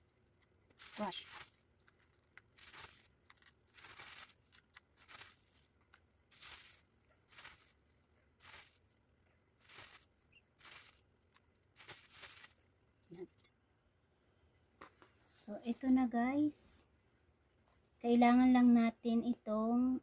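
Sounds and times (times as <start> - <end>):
crackers being crushed: 0.0 - 9.0, 9.6 - 12.7.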